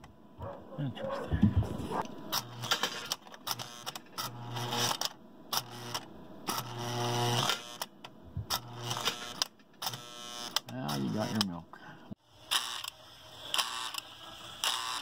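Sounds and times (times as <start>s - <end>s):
model train mechanism buzzing: 2.3s - 7.9s, 8.5s - 11.6s, 12.3s - 15.0s.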